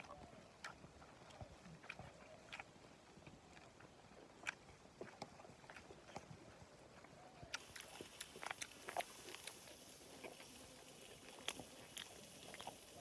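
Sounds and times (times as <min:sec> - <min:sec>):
man eating clicks and smacks: 0:07.5 - 0:13.0
background hiss: 0:07.6 - 0:13.0.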